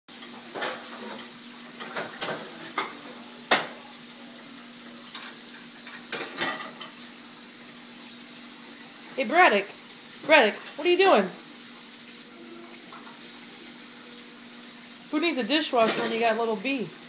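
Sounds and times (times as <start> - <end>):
dishes clinking and knocking: 0.4 - 3.8, 5.1 - 7.0, 15.8 - 16.4.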